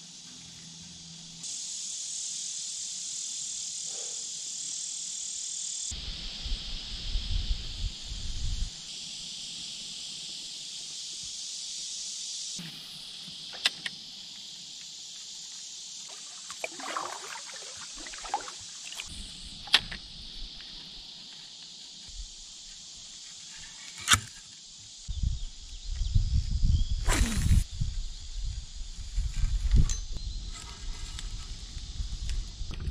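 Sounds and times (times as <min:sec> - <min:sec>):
insects buzzing: 0:00.0 - 0:32.9
paddle strokes splashing water: 0:16.1 - 0:19.1.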